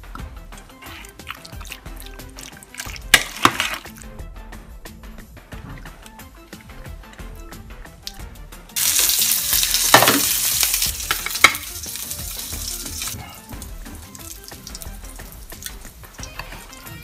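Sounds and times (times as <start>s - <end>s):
food sizzling in frying pan: 8.8s - 16.8s.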